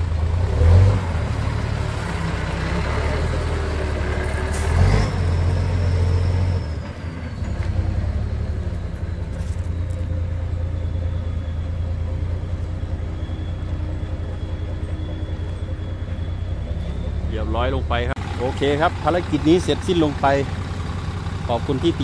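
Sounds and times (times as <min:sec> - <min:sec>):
truck diesel engine under load: 0:00.0 - 0:22.0
turbo whistle: 0:10.5 - 0:17.9.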